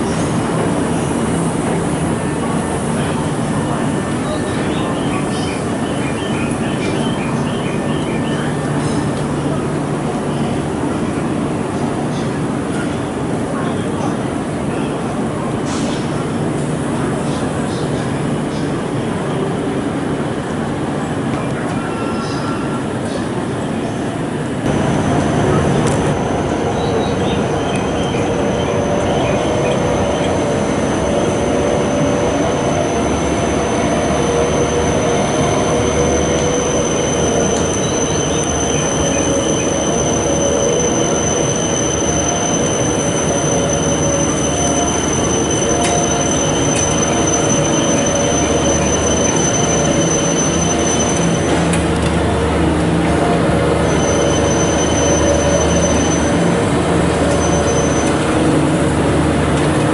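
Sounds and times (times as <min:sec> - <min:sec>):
wheels squealing on rails: 0:21.1 - 0:59.9.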